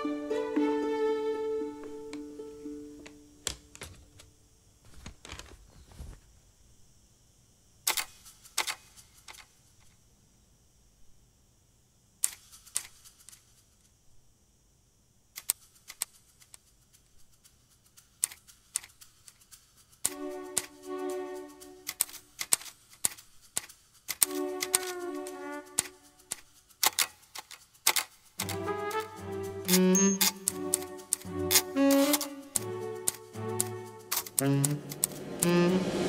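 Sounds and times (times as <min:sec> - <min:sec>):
paper feeding into typewriter: 0:25.8 - 0:29.0, 0:29.7 - 0:33.3, 0:34.1 - 0:34.8.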